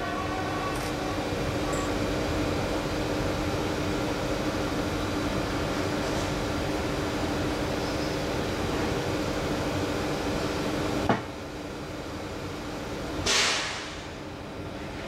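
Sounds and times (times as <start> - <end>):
train equipment humming: 0.0 - 13.3
sharp clunk: 13.2 - 14.0.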